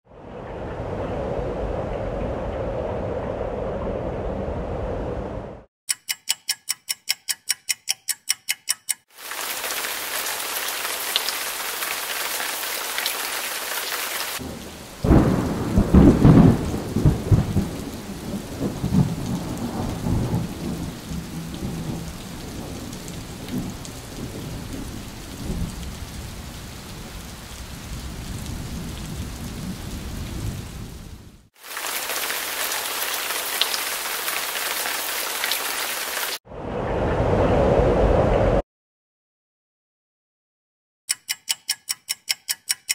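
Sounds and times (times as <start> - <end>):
steady rain hiss: 9.2 - 36.4
low thunder rumble: 14.4 - 31.5, 36.5 - 38.6.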